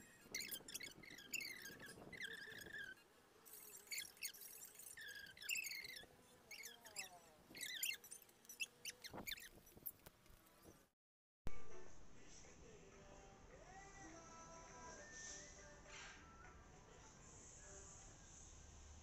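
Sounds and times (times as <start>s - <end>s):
parakeet squeaky chirps: 0.0s - 10.0s.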